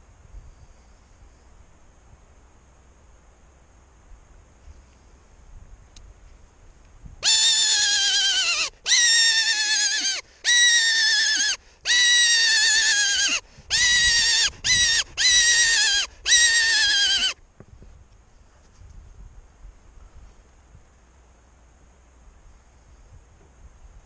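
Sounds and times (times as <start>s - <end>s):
hunting call squeals: 7.2s - 17.4s.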